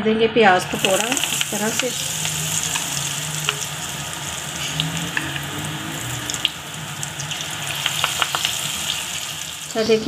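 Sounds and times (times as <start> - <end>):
deep-frying sizzle with pops: 0.6 - 10.0.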